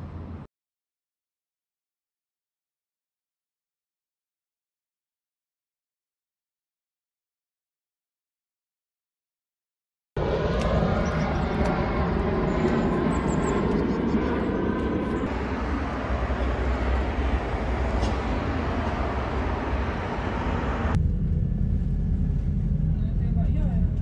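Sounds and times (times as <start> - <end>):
vehicle rumble: 10.2 - 24.0.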